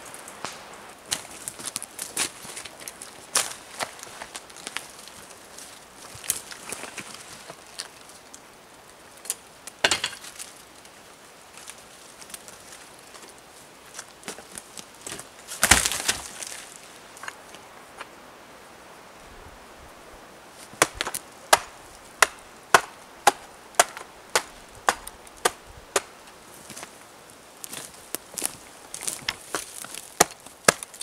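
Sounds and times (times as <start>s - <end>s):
log thudding on ground: 9.8s - 10.4s, 15.0s - 16.6s, 20.7s - 26.1s
hatchet chopping log: 20.8s - 26.1s, 29.9s - 31.0s.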